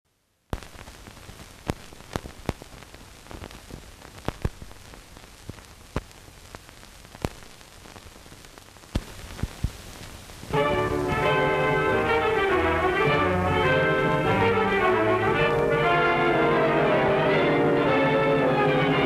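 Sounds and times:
crackles and pops: 0:00.1 - 0:13.8
film soundtrack hiss: 0:00.1 - 0:19.0.

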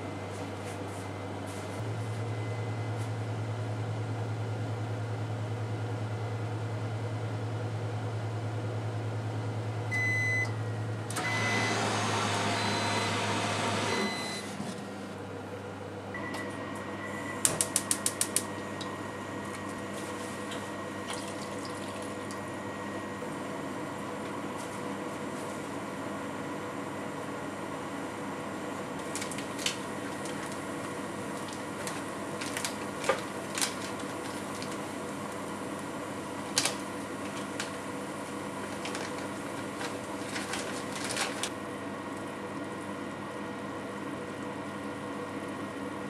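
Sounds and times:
oven humming: 0:00.0 - 0:46.0
oven timer beeps: 0:02.2 - 0:03.2, 0:09.9 - 0:11.8, 0:12.5 - 0:13.2, 0:13.8 - 0:14.5, 0:16.1 - 0:18.9.

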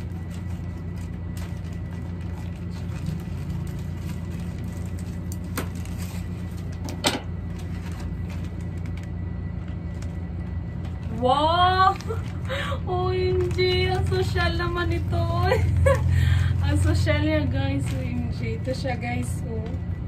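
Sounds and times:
plastic pouch crackling: 0:00.0 - 0:16.0
steady low hum: 0:00.0 - 0:20.0.

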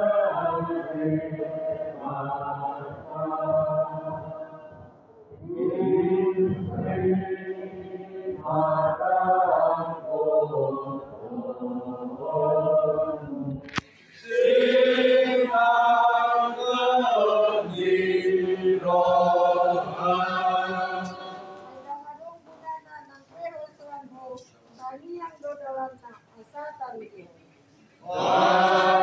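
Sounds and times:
group singing a hymn: 0:00.0 - 0:22.1, 0:28.0 - 0:29.0.

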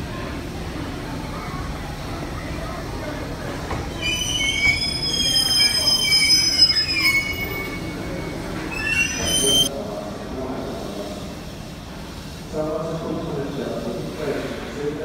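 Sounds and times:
train rumbling past: 0:00.0 - 0:15.0
train wheels squealing: 0:03.8 - 0:09.7.

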